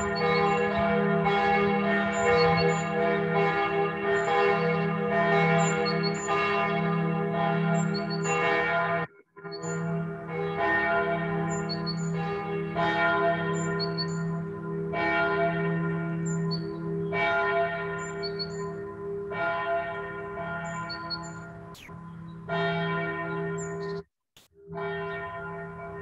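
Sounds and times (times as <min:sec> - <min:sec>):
church bells ringing: 0:00.0 - 0:24.0, 0:24.7 - 0:26.0.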